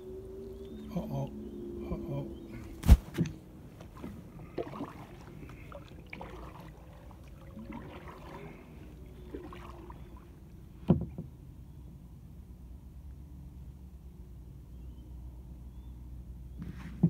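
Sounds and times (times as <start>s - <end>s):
paddle strokes in water: 2.8s - 11.3s
small splashes and drips: 3.3s - 10.6s.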